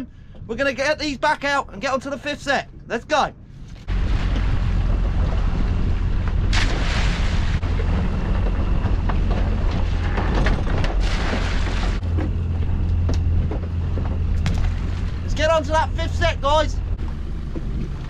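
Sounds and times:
wind buffeting microphone: 2.6 - 18.0
water splashing against hull: 3.6 - 18.0
outboard motor running: 3.8 - 18.0.

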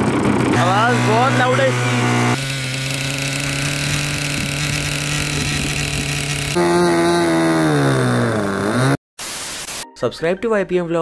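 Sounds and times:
small model engine running: 0.0 - 6.6
high-pitched model engine: 0.0 - 9.0.

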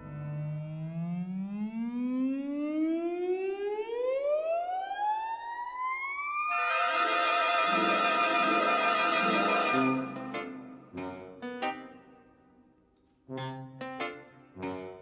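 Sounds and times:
rising siren-like tone: 0.3 - 10.2
loud orchestral music: 6.5 - 11.0.

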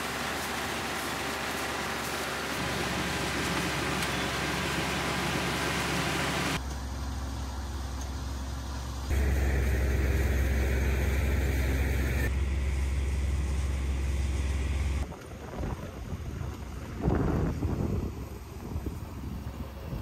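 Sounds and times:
combine harvester running: 0.0 - 20.0
wind rumble on microphone: 15.0 - 20.0.

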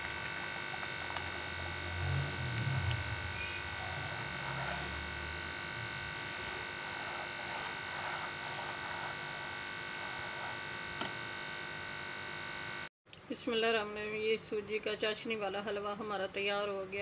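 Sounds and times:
steady electrical hum: 0.0 - 17.0.

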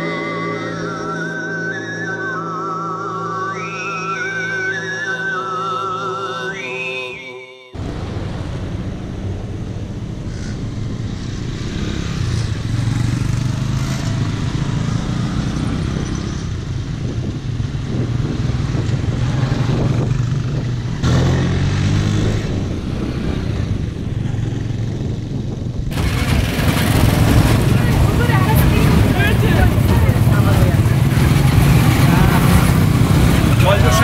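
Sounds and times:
small motorcycle engines running: 9.9 - 34.0.

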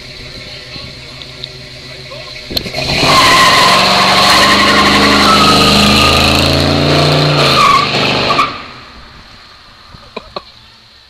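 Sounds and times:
car engine revving loudly: 0.7 - 8.7
tyres squealing in a burnout: 1.7 - 8.9.

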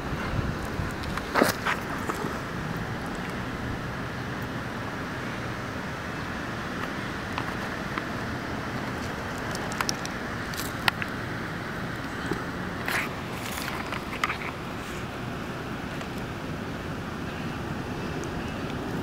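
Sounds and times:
outdoor background rumble and hiss: 0.0 - 19.0
turtle claws clicking on paving: 0.6 - 3.4, 6.8 - 15.2, 18.1 - 19.0.

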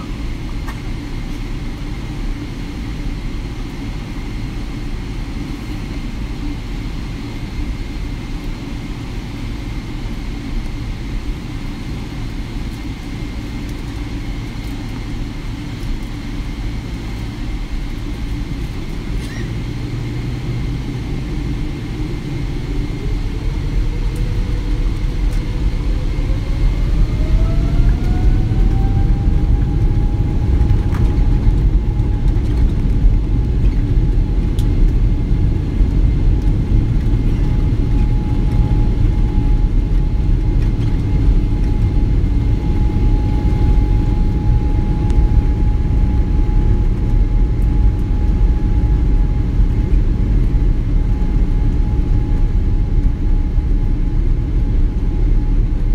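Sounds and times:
jet engine whine: 0.0 - 55.9
loud engine rumble: 11.6 - 55.9.

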